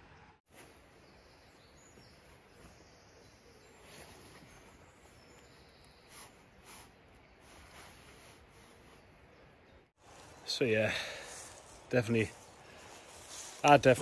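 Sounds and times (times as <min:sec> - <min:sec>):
faint outdoor background noise: 0:00.0 - 0:14.0
fabric rustling: 0:06.1 - 0:09.2.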